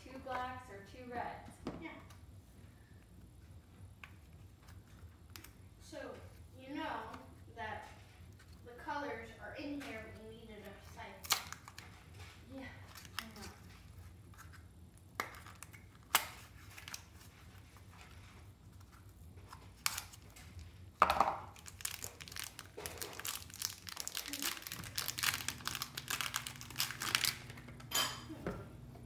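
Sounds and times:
plastic wrapping crinkling: 10.7 - 14.7, 15.3 - 27.9.

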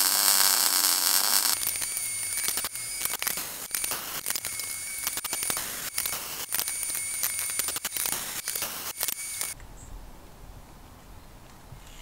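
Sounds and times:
arc welding hiss and clicks: 0.0 - 9.6.

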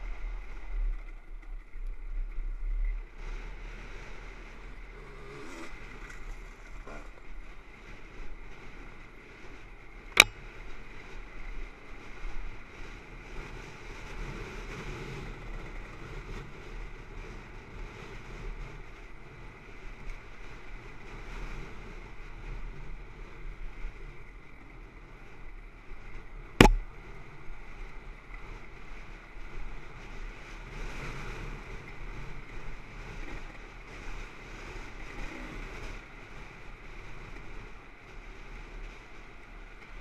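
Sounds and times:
sharp knock: 26.6 - 26.8
dirt bike engine running: 26.6 - 26.9.

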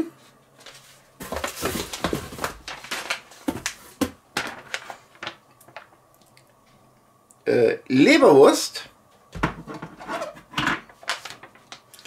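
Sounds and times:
packaging rustling: 0.6 - 5.4, 10.9 - 12.0.

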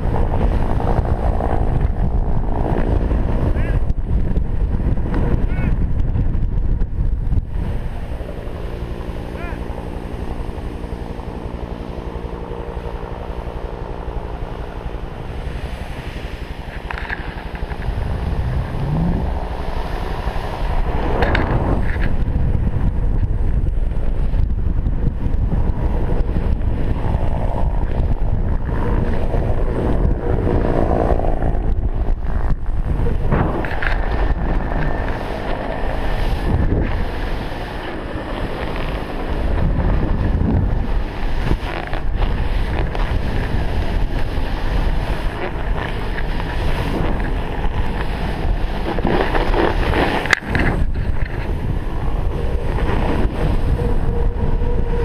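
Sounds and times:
wind buffeting microphone: 0.0 - 55.0.

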